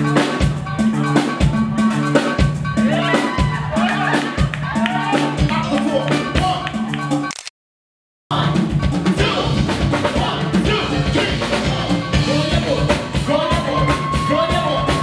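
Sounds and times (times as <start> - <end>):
drum kit beat: 0.0 - 7.3, 8.3 - 15.0
person singing: 8.3 - 15.0.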